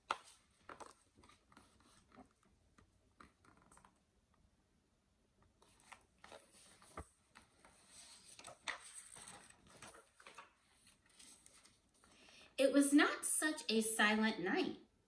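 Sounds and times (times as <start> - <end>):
book pages rustling: 0.0 - 4.0, 5.4 - 12.4.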